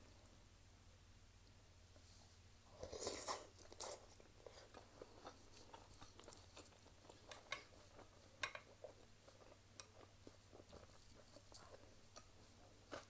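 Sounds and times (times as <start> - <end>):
wet chewing and mouth smacks: 2.9 - 13.0.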